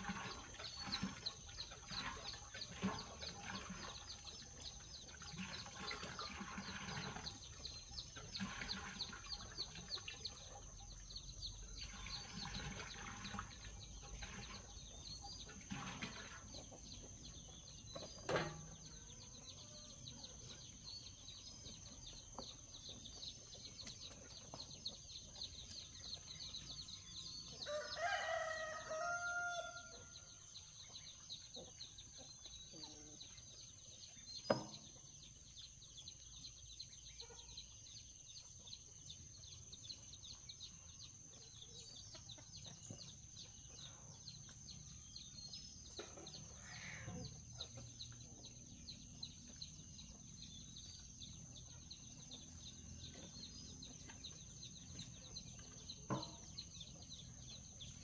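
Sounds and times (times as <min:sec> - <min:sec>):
rooster crowing: 0:27.6 - 0:30.3.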